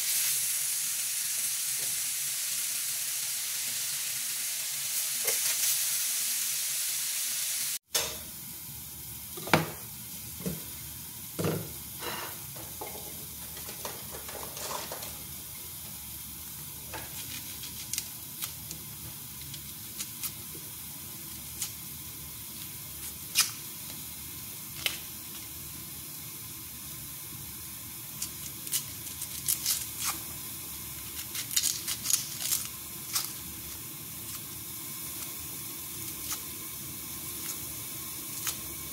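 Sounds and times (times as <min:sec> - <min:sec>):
meat sizzling in a frying pan: 0:00.0 - 0:38.9
onion skin peeling crackles: 0:17.0 - 0:20.5, 0:21.2 - 0:21.9, 0:22.5 - 0:23.7, 0:28.1 - 0:38.9.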